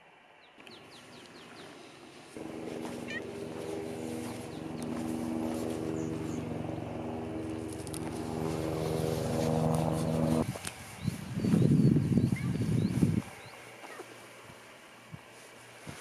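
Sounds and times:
engine running: 0:01.4 - 0:10.8
low uneven rumbling: 0:02.3 - 0:10.4.

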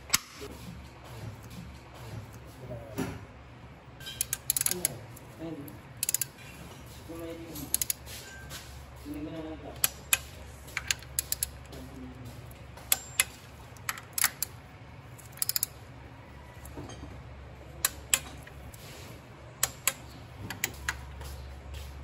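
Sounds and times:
ratchet wrench clicking: 0:04.0 - 0:05.0, 0:06.0 - 0:06.4, 0:07.6 - 0:08.0, 0:09.8 - 0:11.6, 0:12.8 - 0:14.5, 0:15.2 - 0:15.8, 0:19.6 - 0:21.0.

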